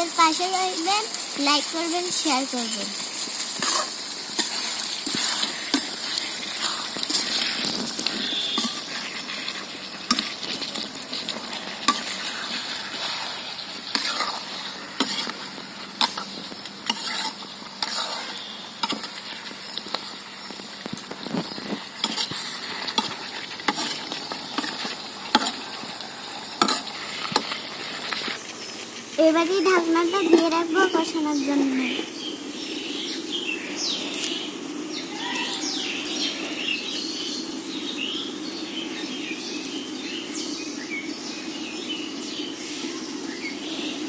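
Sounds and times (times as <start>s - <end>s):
meat sizzling in hot oil: 0.0s - 44.0s
metal spatula scraping pan: 3.6s - 19.2s, 22.0s - 25.7s, 26.6s - 27.6s.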